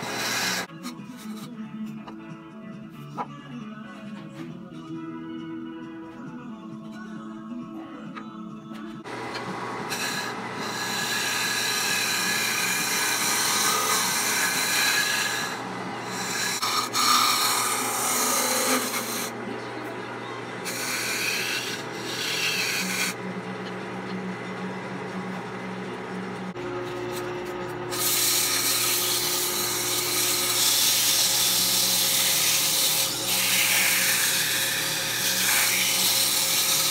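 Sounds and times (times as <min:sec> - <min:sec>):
lathe motor hum: 0:00.0 - 0:00.7, 0:09.0 - 0:36.9
gouge scraping wood on lathe: 0:00.0 - 0:01.5, 0:09.1 - 0:19.4, 0:20.6 - 0:24.2, 0:27.9 - 0:36.9.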